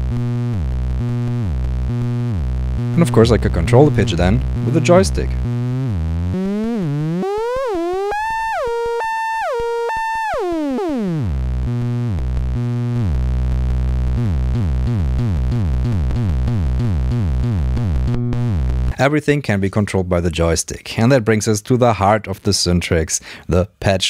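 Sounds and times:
synthesizer oscillator pitch sweeping: 0:00.0 - 0:13.2, 0:14.1 - 0:18.9
fast sequence of sliding synth notes: 0:05.6 - 0:11.4.

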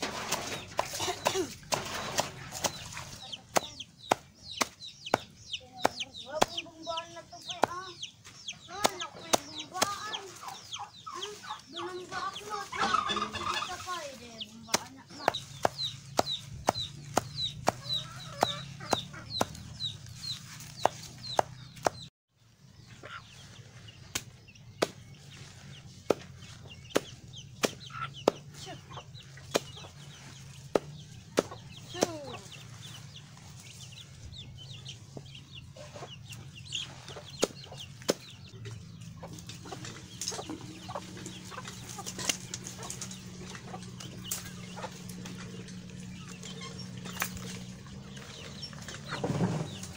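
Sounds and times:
chickens clucking: 0:00.0 - 0:49.9
knife chopping stalks: 0:14.7 - 0:19.8, 0:20.6 - 0:22.1, 0:26.1 - 0:28.5.

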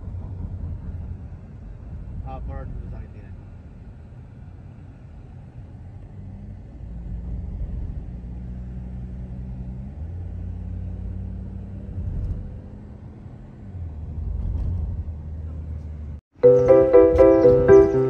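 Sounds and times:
car engine hum: 0:00.0 - 0:18.0
car road noise rumble: 0:00.0 - 0:18.0.

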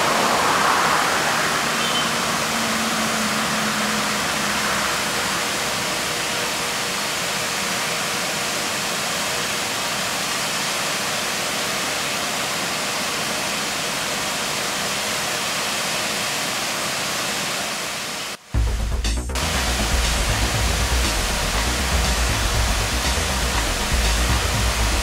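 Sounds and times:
water pouring from a pipe: 0:19.4 - 0:25.0.

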